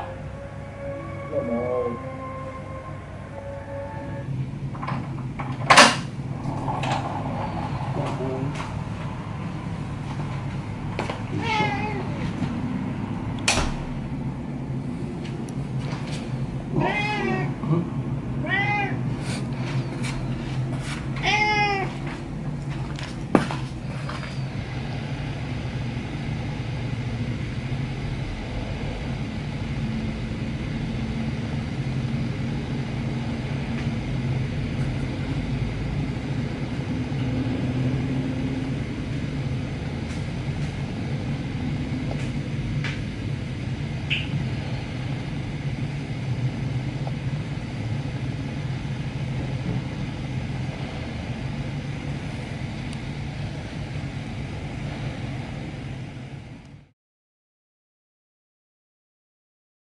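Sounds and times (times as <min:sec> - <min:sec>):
steady low rumble: 0:00.0 - 0:56.9
cat meowing: 0:11.3 - 0:12.2, 0:16.7 - 0:17.6, 0:18.4 - 0:19.1, 0:21.2 - 0:22.0.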